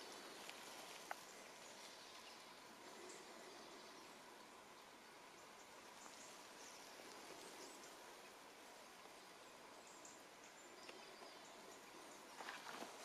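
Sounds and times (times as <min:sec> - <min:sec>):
distant bird chirps: 0:00.0 - 0:13.0
soft hiss: 0:00.0 - 0:13.0.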